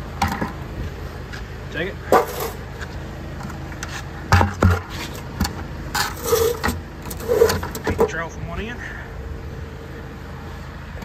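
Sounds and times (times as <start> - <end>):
sharp metal clunks: 4.3 - 6.8.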